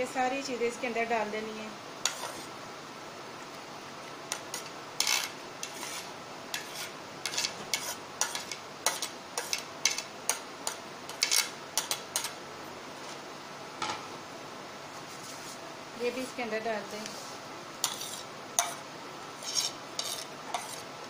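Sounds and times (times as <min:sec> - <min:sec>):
metal spoon scraping a plate: 0:02.0 - 0:02.5, 0:04.3 - 0:10.4, 0:11.1 - 0:12.3, 0:17.8 - 0:18.8, 0:19.4 - 0:20.9.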